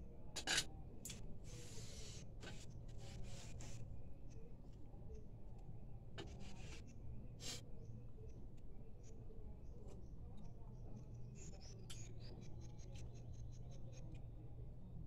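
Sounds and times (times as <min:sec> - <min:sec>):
tableware scraping and rustling: 0:00.4 - 0:00.7.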